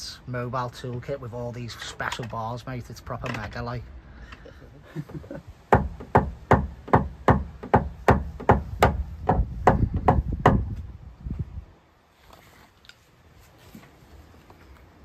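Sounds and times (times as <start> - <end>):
hammer tapping on car door panel: 5.7 - 10.7.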